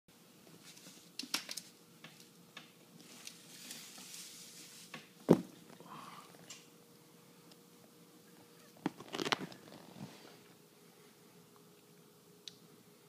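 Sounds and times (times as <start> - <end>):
loud thump: 5.3 - 5.5.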